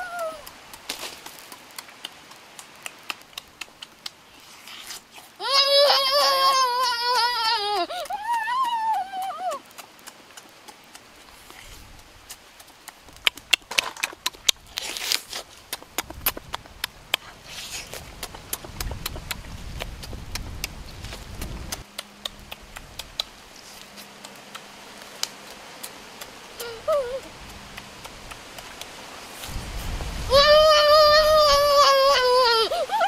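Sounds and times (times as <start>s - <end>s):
wet chewing and lip smacks: 0.1s - 5.4s, 7.9s - 29.6s
meat tearing from bone: 13.5s - 16.4s.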